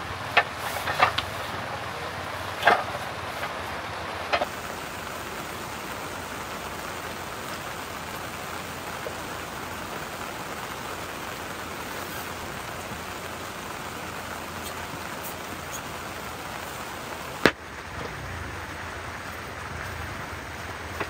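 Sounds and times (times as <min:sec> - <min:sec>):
steady hiss: 0:00.0 - 0:21.0.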